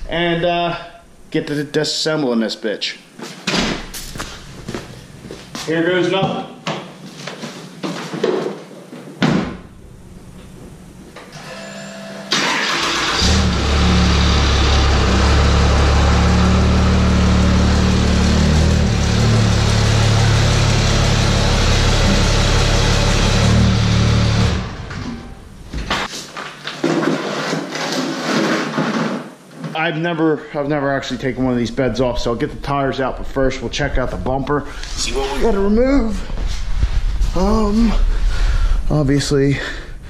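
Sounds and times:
diesel engine running: 12.4s - 25.7s.

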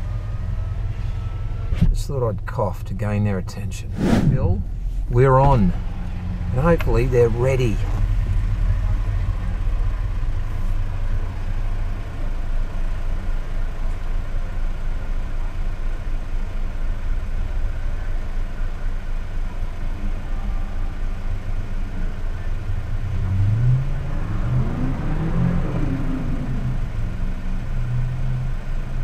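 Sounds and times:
car engine idling: 0.0s - 29.0s.

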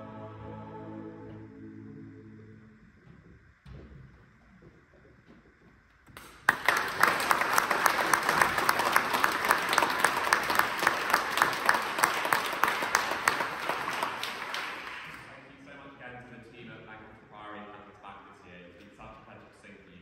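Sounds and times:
audience applauding: 6.1s - 15.5s.

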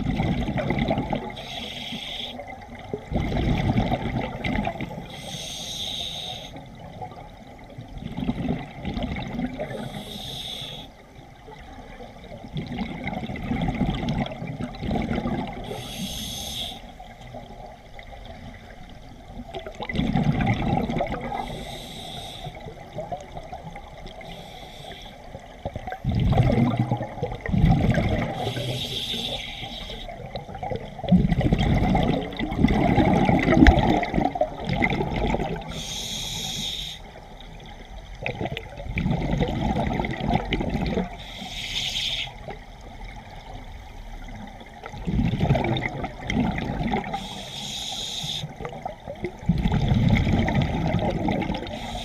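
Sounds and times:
gurgling exhaled bubbles: 0.0s - 1.7s, 2.4s - 5.1s, 6.8s - 10.2s, 11.5s - 16.4s, 17.0s - 24.5s, 25.2s - 36.0s, 37.6s - 41.2s, 44.2s - 47.4s, 48.0s - 52.0s
hissing regulator inhale: 1.4s - 2.4s, 5.1s - 6.6s, 9.7s - 11.0s, 15.6s - 17.0s, 21.3s - 22.7s, 24.2s - 25.3s, 28.4s - 30.2s, 35.6s - 37.2s, 41.2s - 42.4s, 47.0s - 48.6s, 51.6s - 52.0s.

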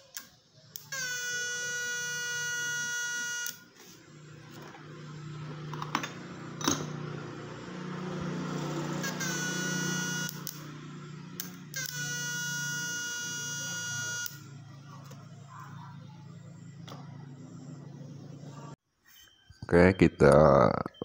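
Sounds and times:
high-pitched inverter whine: 0.0s - 20.1s.

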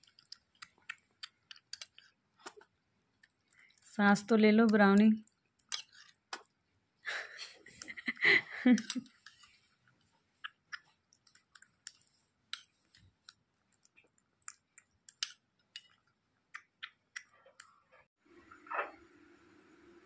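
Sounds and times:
kitten lapping milk: 0.0s - 3.9s.

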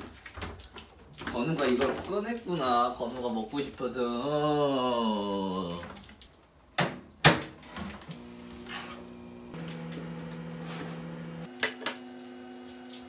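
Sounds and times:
microwave oven humming: 8.0s - 13.0s.

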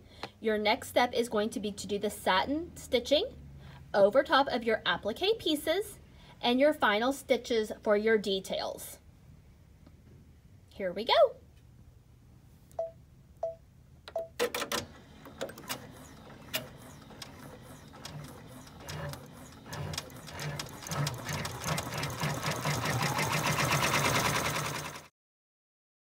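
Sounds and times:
short beeps: 12.8s - 13.6s
embroidery machine stitching: 14.4s - 25.1s
machine whine: 14.9s - 25.0s.

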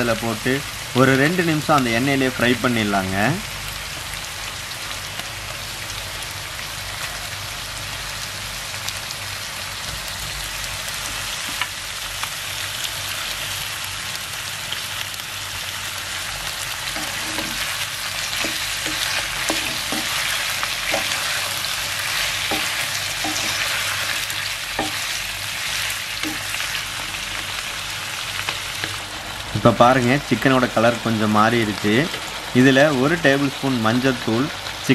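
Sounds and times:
chicken sizzling in oil: 0.0s - 34.9s
spatula knocking and scraping pan: 16.9s - 26.6s.

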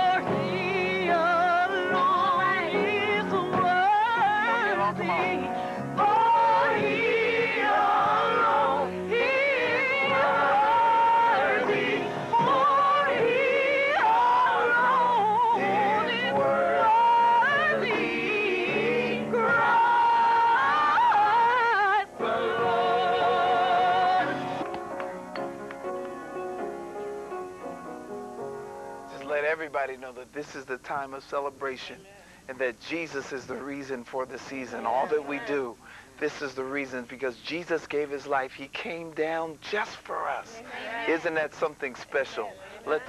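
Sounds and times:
gospel singing: 0.0s - 24.8s, 29.1s - 43.0s
instrumental accompaniment: 0.0s - 29.4s.

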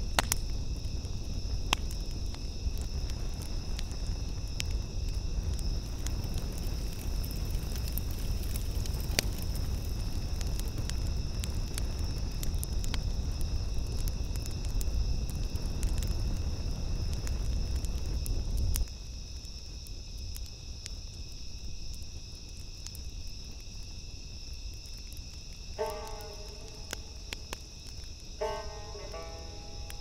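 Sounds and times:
bonfire crackling and rumbling: 0.0s - 30.0s
crickets chirping: 0.0s - 30.0s
musical notes: 25.8s - 27.3s, 28.4s - 30.0s.

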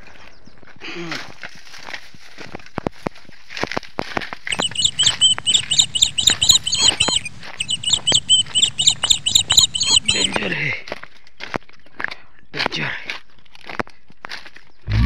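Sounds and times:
footsteps crunching on stones: 1.2s - 8.8s, 10.1s - 14.9s
small animal chirping: 4.5s - 10.5s.

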